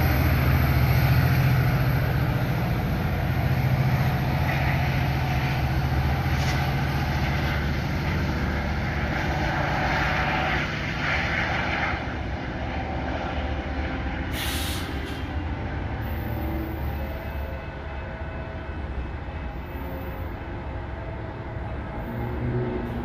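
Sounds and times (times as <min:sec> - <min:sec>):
diesel train engine drone: 0:00.0 - 0:23.0
air hiss: 0:14.3 - 0:15.2.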